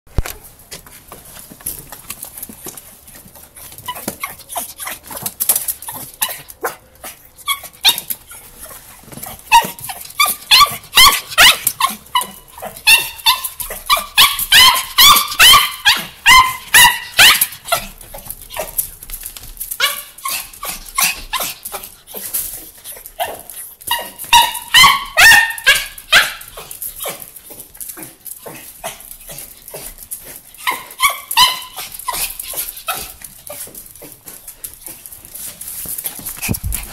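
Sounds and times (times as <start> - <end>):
dog yelping and whining: 3.6 - 18.8, 19.7 - 27.6, 28.4 - 33.7.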